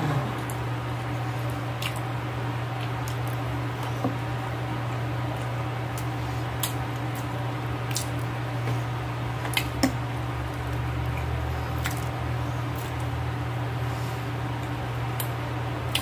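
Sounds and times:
steady low hum: 0:00.0 - 0:16.0
wet chewing mouth sounds: 0:10.6 - 0:13.2.

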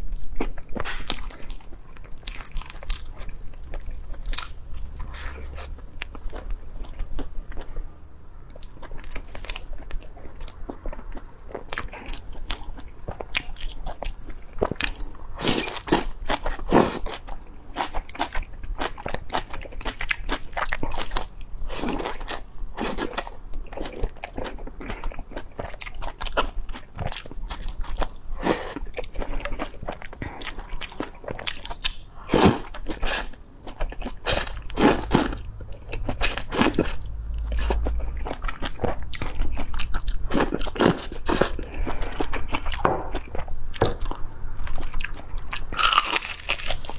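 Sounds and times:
chewing and biting: 0:00.0 - 0:07.8, 0:08.6 - 0:46.9.

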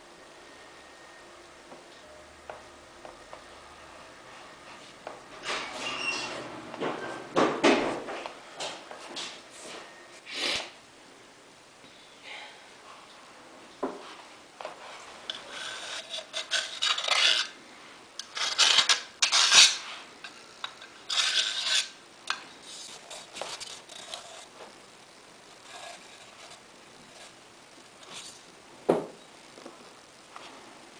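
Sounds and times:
rubbing and scraping on filter basket: 0:14.8 - 0:17.6, 0:18.2 - 0:20.1, 0:21.0 - 0:22.0, 0:22.6 - 0:24.7, 0:25.5 - 0:27.4.

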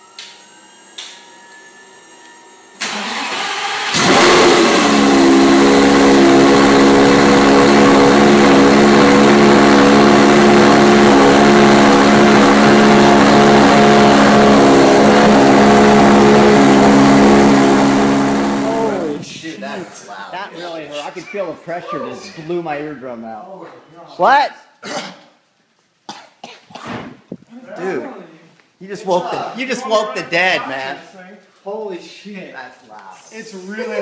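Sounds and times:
car engine idling loudly: 0:02.9 - 0:19.2.

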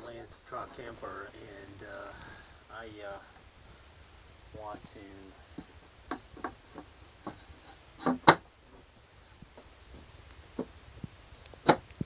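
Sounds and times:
sharp clicks and light knocks: 0:05.6 - 0:12.0.

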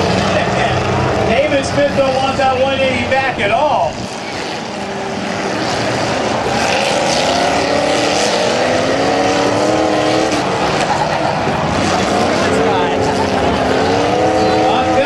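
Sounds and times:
car engine revving rough: 0:00.0 - 0:15.0.

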